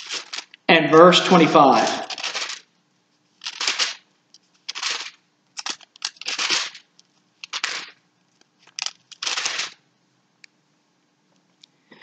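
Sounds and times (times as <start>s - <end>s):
pages turning: 0.0s - 0.7s, 1.3s - 2.7s, 3.3s - 8.0s, 8.6s - 9.8s.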